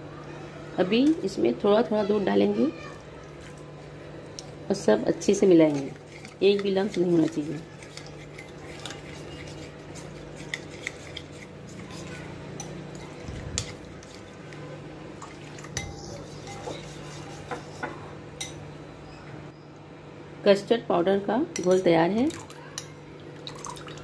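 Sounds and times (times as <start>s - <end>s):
spoon stirring liquid: 2.9s - 18.6s.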